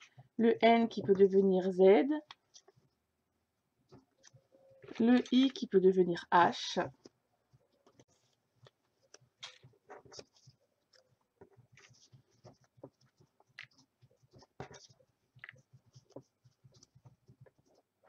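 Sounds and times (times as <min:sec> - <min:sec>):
paper cards rustling and tapping: 0:07.8 - 0:17.9.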